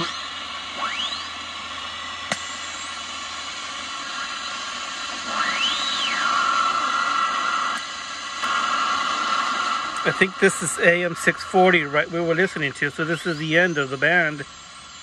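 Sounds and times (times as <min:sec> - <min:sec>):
radio whistle sweeping in pitch: 0:00.0 - 0:01.4, 0:05.2 - 0:07.6
radio static hiss: 0:00.0 - 0:15.0
click: 0:07.7 - 0:08.6.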